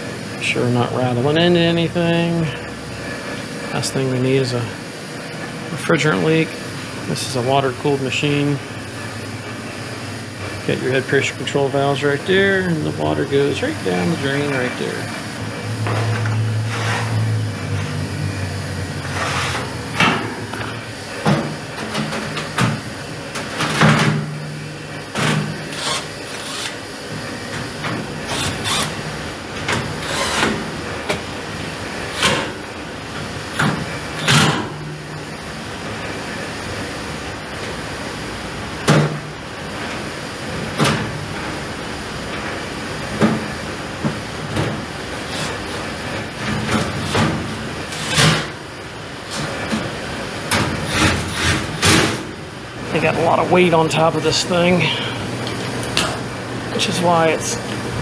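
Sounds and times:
machine humming: 0:00.0 - 0:58.0.

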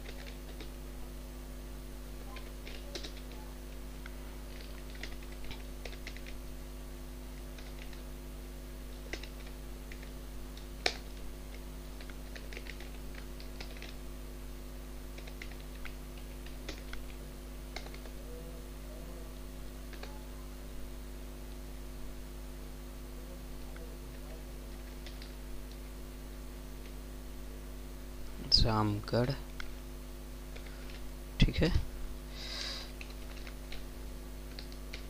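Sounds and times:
computer keyboard typing: 0:00.0 - 0:00.8, 0:02.2 - 0:06.4, 0:07.3 - 0:08.1, 0:08.9 - 0:14.0, 0:15.1 - 0:18.3, 0:19.8 - 0:20.3, 0:23.6 - 0:25.8, 0:30.5 - 0:31.0, 0:32.9 - 0:33.9, 0:34.5 - 0:35.0
steady electrical hum: 0:00.0 - 0:35.0.

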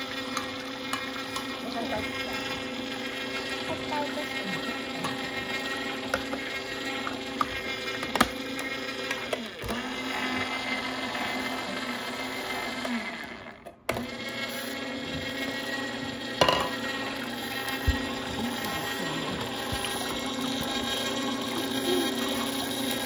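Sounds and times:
juicer motor humming: 0:00.0 - 0:23.0.

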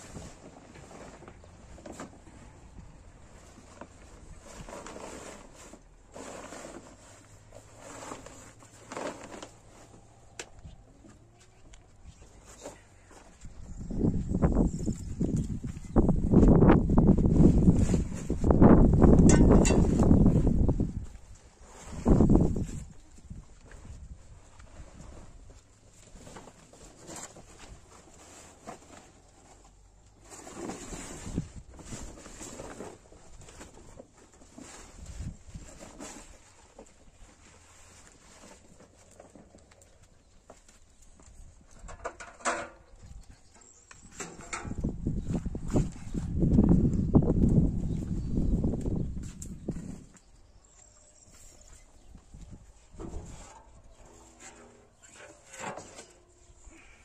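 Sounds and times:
plastic tarp rustling: 0:03.2 - 0:10.1, 0:14.6 - 0:39.6.

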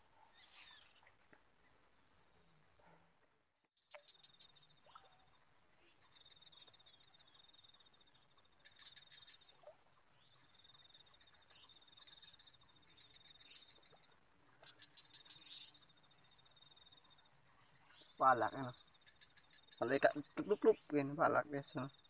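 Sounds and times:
insect fast-pulsing trill: 0:03.8 - 0:22.0
insects high buzz: 0:03.8 - 0:22.0.

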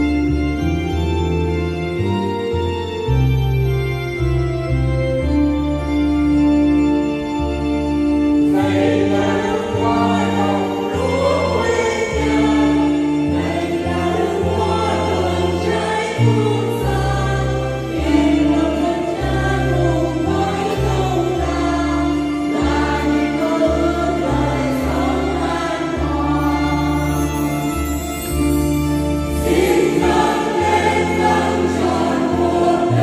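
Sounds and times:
instrumental accompaniment: 0:00.0 - 0:33.0
choir singing a hymn: 0:08.3 - 0:33.0.

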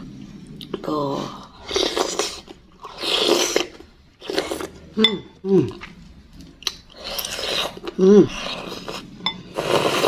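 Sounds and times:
person slurping broth: 0:00.0 - 0:06.0, 0:06.9 - 0:10.0
person humming mm: 0:05.0 - 0:05.8, 0:07.8 - 0:08.6.

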